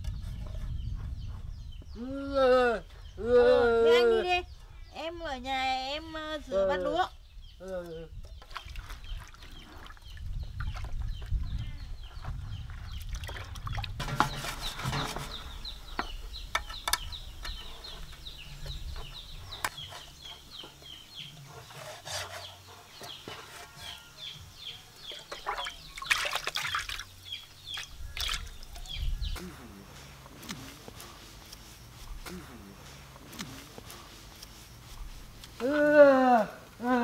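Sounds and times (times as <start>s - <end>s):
pan scrubbed in water: 14.0s - 15.6s.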